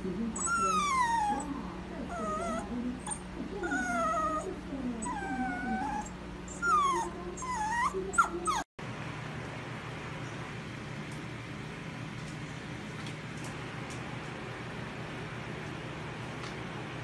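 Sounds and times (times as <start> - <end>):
puppy whining and yelping: 0.4 - 8.7.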